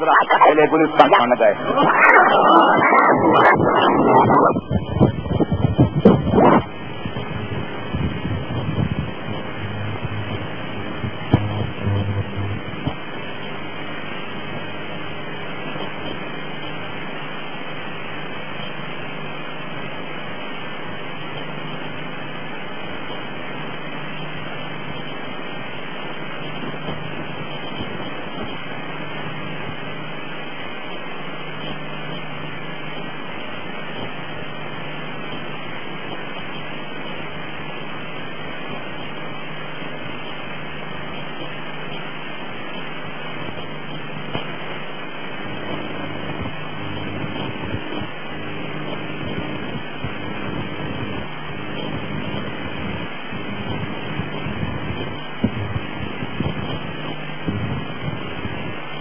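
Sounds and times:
faint low hum: 0.0 - 16.0
tape hiss: 0.0 - 59.0.

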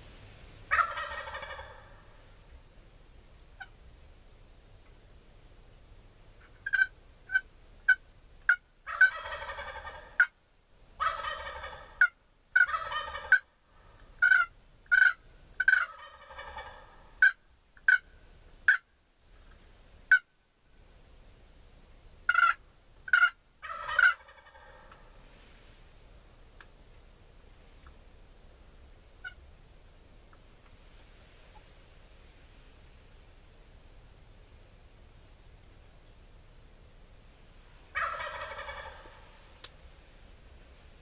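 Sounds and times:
turkeys gobbling: 0.7 - 2.3, 6.4 - 10.4, 11.0 - 18.1, 18.7 - 18.9, 20.1 - 20.3, 22.3 - 25.2, 37.9 - 39.7
sharp single turkey calls: 0.7 - 2.4, 3.6 - 3.8, 6.4 - 10.4, 11.0 - 20.4, 22.3 - 25.2, 29.2 - 29.5, 37.9 - 39.8.

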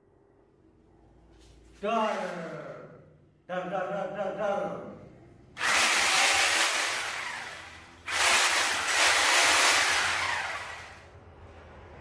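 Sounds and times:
rotary hammer drill running: 5.6 - 11.1.

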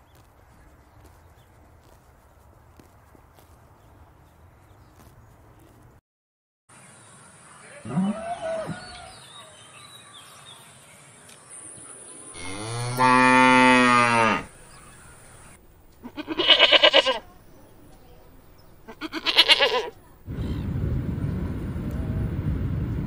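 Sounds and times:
cow mooing: 12.4 - 14.6, 16.0 - 17.3, 18.9 - 20.0
sheep bleating: 16.0 - 17.4, 18.8 - 20.0.

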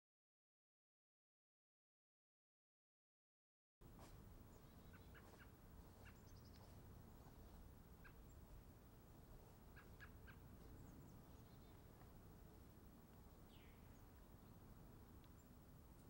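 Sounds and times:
faint steady background noise: 3.8 - 16.0.

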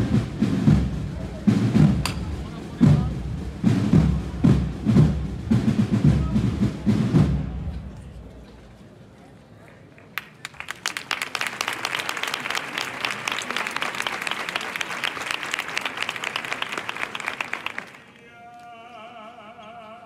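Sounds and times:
crowd applauding: 10.0 - 18.2
person singing with vibrato: 18.1 - 20.0.

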